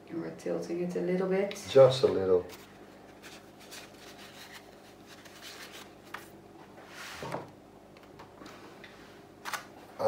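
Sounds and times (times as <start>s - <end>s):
low room hum: 0.0s - 10.0s
handling and rustling noises: 2.1s - 6.4s.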